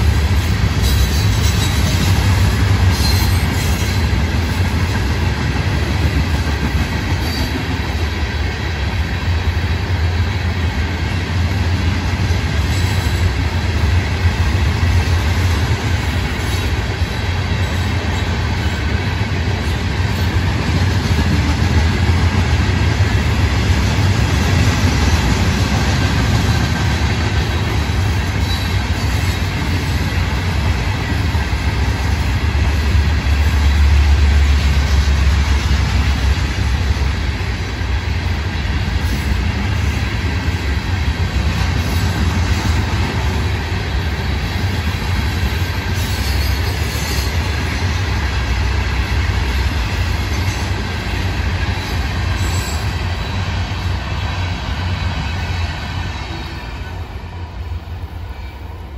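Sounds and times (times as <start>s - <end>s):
steel wheels rumbling on track: 0.0s - 58.9s
high wheel squeal: 2.9s - 4.0s.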